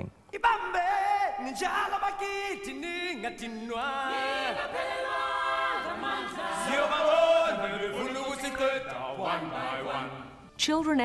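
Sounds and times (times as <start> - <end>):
voices singing together: 0.4 - 10.5.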